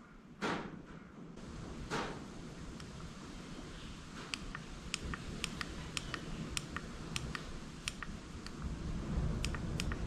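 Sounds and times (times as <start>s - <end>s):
push buttons clicking: 4.3s - 8.6s, 9.4s - 10.0s.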